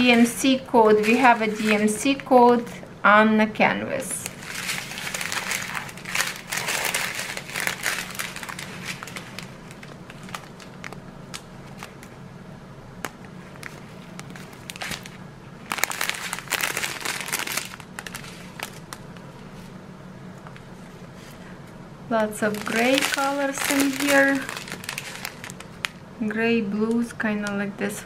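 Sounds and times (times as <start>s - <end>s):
plastic bags crinkling: 0.8s - 2.2s, 4.1s - 12.1s, 13.5s - 19.2s, 22.2s - 26.0s.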